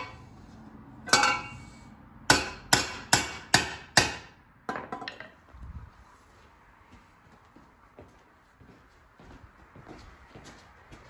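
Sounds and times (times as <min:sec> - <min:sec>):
hammer striking metal pipe: 0:00.0 - 0:00.2, 0:01.1 - 0:05.3.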